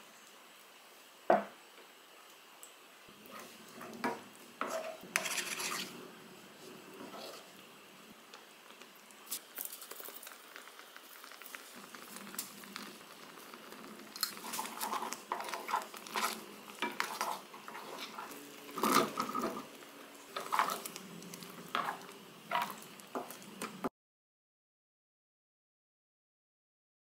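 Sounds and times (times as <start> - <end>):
wooden spoon stirring thick sauce: 3.2 - 7.6, 9.8 - 23.9.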